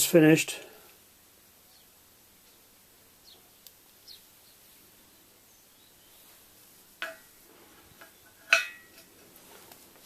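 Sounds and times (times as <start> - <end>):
light metal taps: 7.0 - 7.3
steel parts clinking on steel: 8.0 - 9.1.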